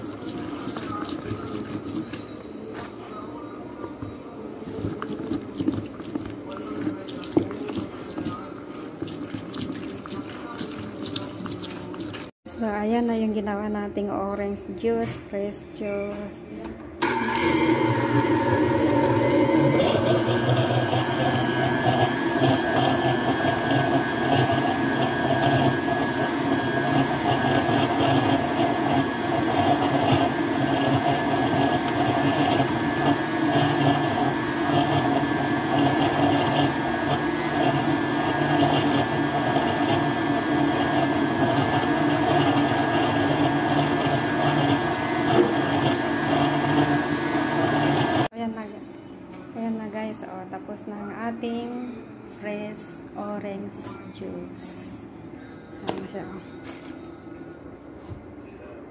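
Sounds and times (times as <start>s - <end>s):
blender running: 17.0s - 48.3s.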